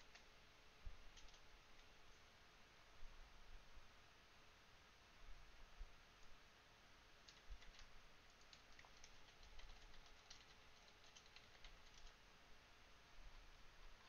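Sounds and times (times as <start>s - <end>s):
typing on computer keyboard: 1.1s - 1.9s, 7.2s - 12.2s.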